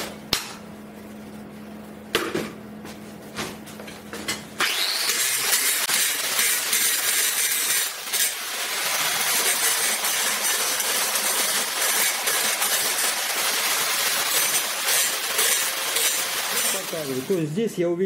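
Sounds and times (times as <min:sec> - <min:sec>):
angle grinder grinding metal: 0:04.6 - 0:17.6.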